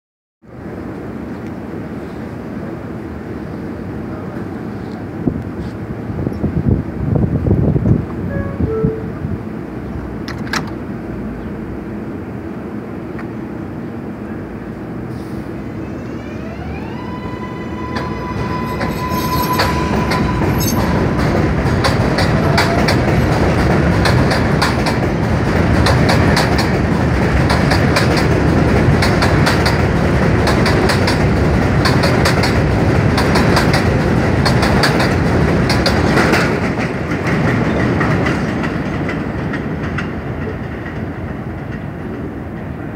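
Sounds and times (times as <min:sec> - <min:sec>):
train motor whine: 0:15.4 - 0:23.2
wheels clacking over rail joints: 0:17.9 - 0:42.8.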